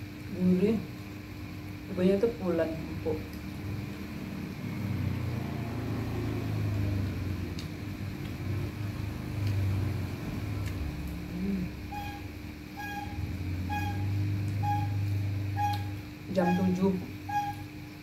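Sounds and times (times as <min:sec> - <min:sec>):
faint steady hum: 0:00.0 - 0:18.0
vehicle engine rumble: 0:03.5 - 0:16.1.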